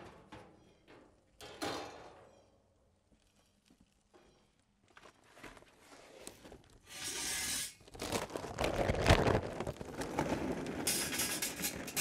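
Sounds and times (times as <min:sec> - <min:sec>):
paper bag crinkling: 0:07.8 - 0:10.9.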